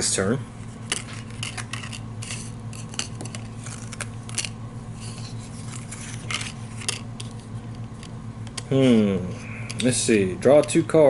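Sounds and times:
low steady hum: 0.0 - 11.0
playing cards snapping and rustling: 0.8 - 8.7.

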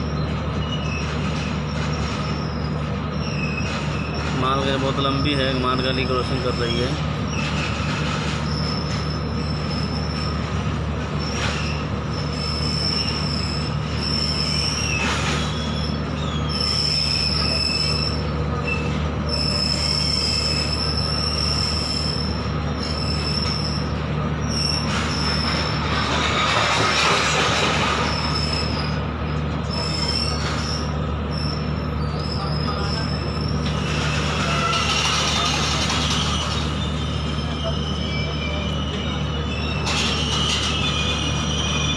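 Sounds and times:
high-pitched wheel squeal: 0.0 - 26.9, 28.0 - 41.9
train wheels rumbling on rail: 0.0 - 41.9.

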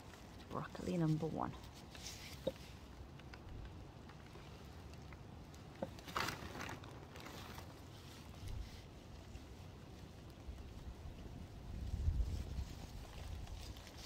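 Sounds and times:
compost rustle and crunch: 0.0 - 14.0
wind rumble on microphone: 10.4 - 14.0.

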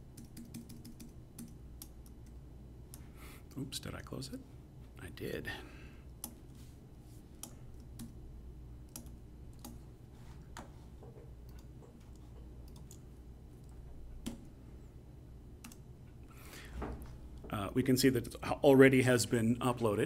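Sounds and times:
low steady hum: 0.0 - 20.0
computer keys clicking: 0.1 - 3.6, 6.1 - 6.6, 7.4 - 8.2, 8.8 - 9.8, 11.4 - 14.5, 15.6 - 15.9.

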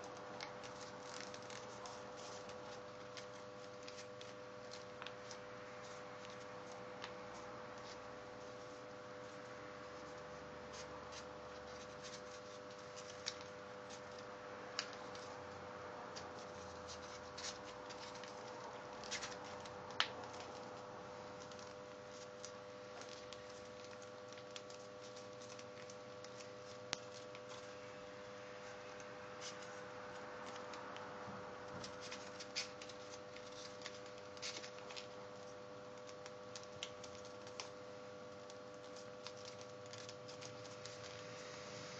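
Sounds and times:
paper crinkling: 0.0 - 15.5, 16.1 - 31.0, 31.6 - 41.8
steady low hum: 0.0 - 41.9.

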